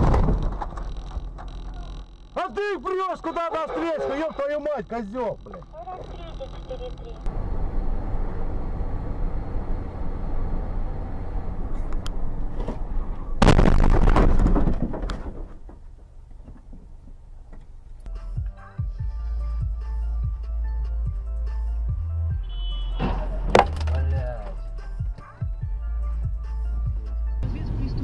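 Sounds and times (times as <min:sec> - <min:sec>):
car road and engine rumble: 0:00.0 - 0:13.6, 0:14.7 - 0:28.0
loud crash impact: 0:13.4 - 0:15.6
music: 0:18.0 - 0:28.0.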